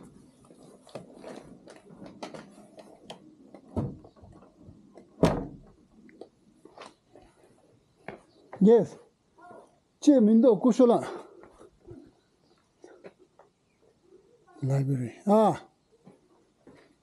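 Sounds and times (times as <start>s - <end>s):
loud thud: 5.2s - 5.7s.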